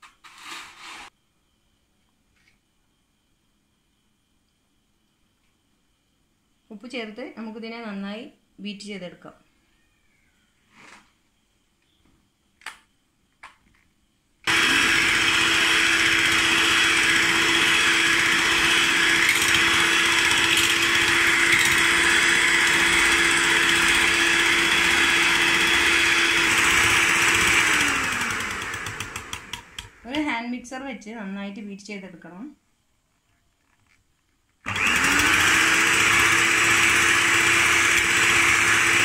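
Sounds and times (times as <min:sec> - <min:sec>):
electric hand mixer whining: 0:14.5 - 0:30.0, 0:34.7 - 0:39.0.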